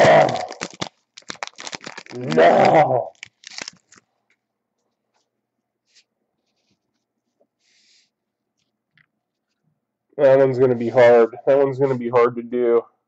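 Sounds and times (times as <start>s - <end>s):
foil wrapper crinkling: 0.0s - 4.4s.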